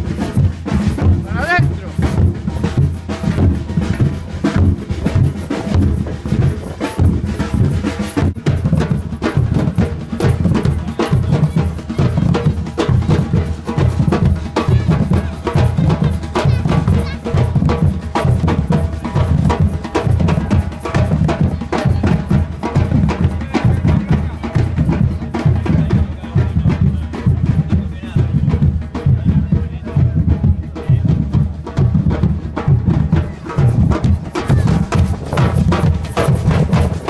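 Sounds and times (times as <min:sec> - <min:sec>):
bass and bucket drums beating: 0:00.0 - 0:37.0.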